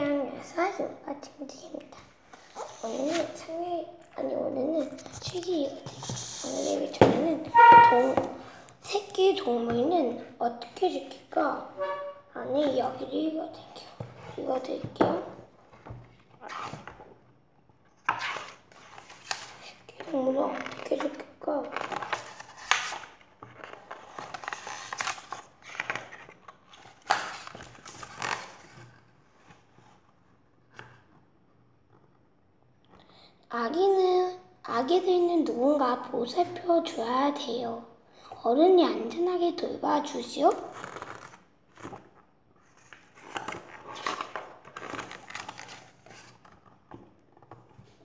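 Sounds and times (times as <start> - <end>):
book pages rustling and flapping: 2.0 - 3.6, 4.6 - 9.9, 13.8 - 32.2, 40.1 - 48.0.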